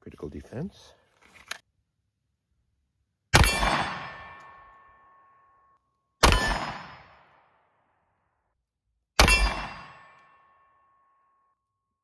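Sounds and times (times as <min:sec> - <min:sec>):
pistol shot: 0:03.3 - 0:04.4, 0:06.2 - 0:07.5, 0:09.2 - 0:10.2
metallic ring of steel target: 0:03.4 - 0:05.6, 0:06.2 - 0:07.0, 0:09.2 - 0:11.1.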